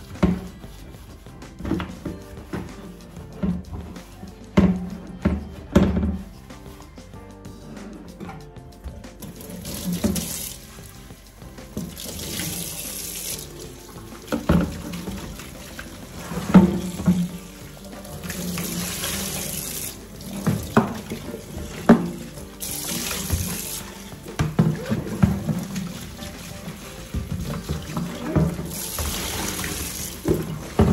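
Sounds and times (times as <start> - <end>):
water splashing on plastic tray: 9.2 - 11.0, 11.6 - 30.9
kitchen tap running into sink: 9.2 - 30.9.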